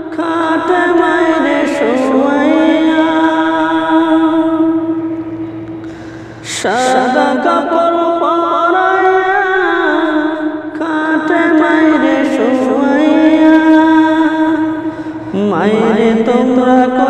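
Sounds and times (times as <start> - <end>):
steady low hum: 0.0 - 17.0
wordless humming voices: 0.0 - 17.0
voices singing melodic phrase: 6.6 - 17.0.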